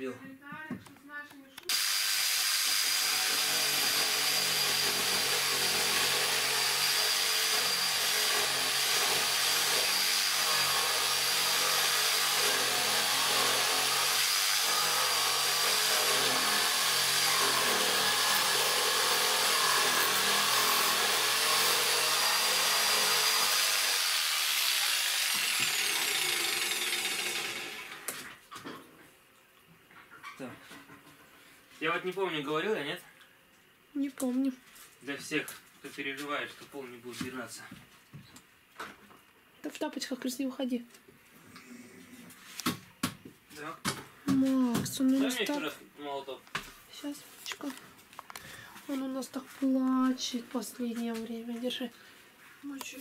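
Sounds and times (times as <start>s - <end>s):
electric jigsaw sawing wood: 1.7s - 28.3s.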